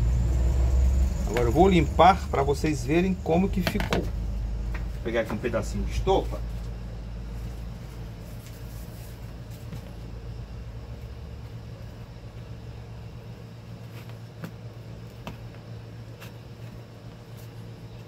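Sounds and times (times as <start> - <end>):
low machinery hum: 0.0 - 18.0.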